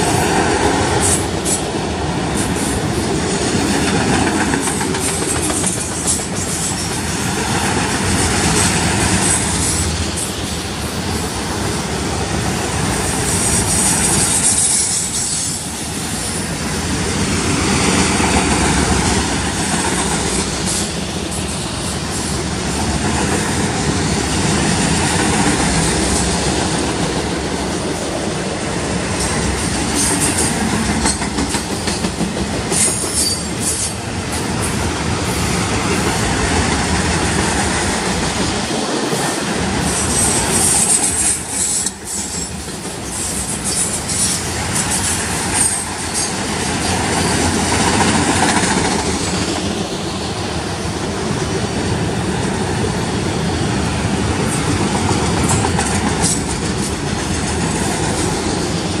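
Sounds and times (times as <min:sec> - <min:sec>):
train wheels rumbling on rail: 0:00.0 - 0:59.0
high wheel squeal: 0:13.2 - 0:16.5, 0:32.8 - 0:34.0, 0:39.9 - 0:47.4.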